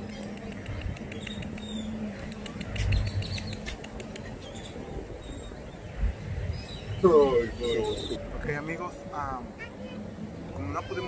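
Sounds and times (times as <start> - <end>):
small birds chirping: 0.0 - 8.2.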